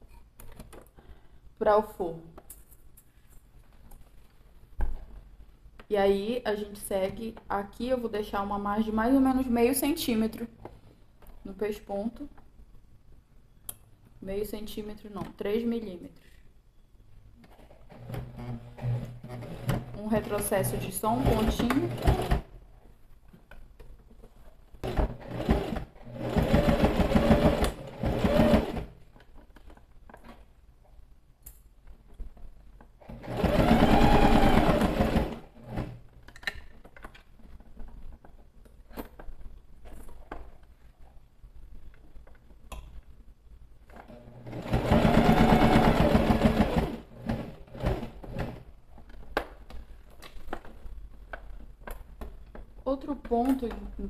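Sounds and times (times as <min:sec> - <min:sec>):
sewing machine running: 0:18.8 - 0:22.5, 0:24.8 - 0:28.9, 0:33.1 - 0:35.9, 0:44.4 - 0:48.6.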